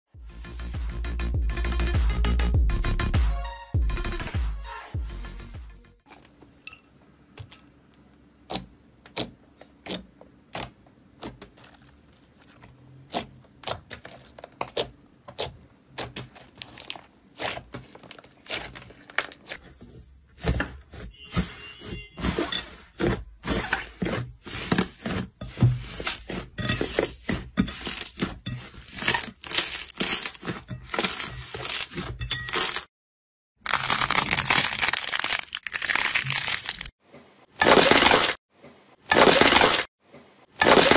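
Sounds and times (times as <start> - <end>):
slime crackling and popping: 33.7 - 36.9.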